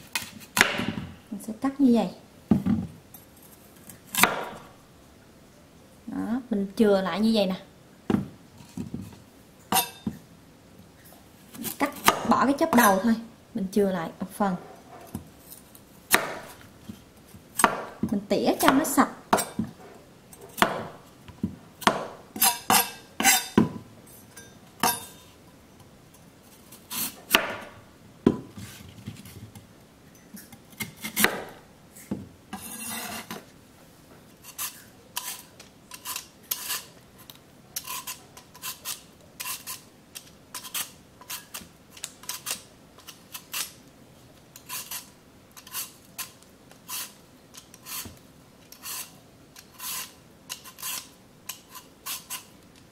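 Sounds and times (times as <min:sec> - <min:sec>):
vegetable peeler scraping: 0:22.4 - 0:23.6, 0:26.5 - 0:27.4, 0:32.6 - 0:33.4, 0:34.4 - 0:43.8, 0:44.6 - 0:52.6
knife cutting on wooden board: 0:30.8 - 0:31.5, 0:32.6 - 0:33.4.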